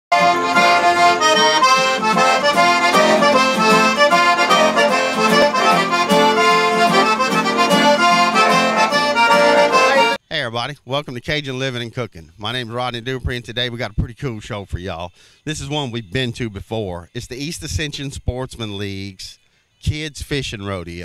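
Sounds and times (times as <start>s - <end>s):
accordion music: 0.1s - 10.2s.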